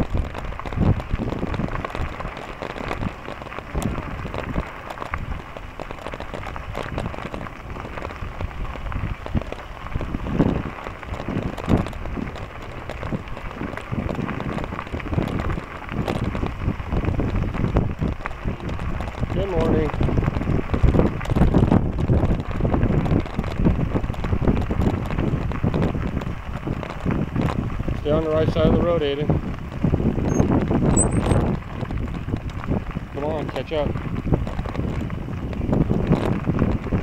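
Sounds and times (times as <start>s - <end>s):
bicycle tyres rolling on gravel: 0.0s - 37.0s
wind buffeting microphone: 0.0s - 37.0s.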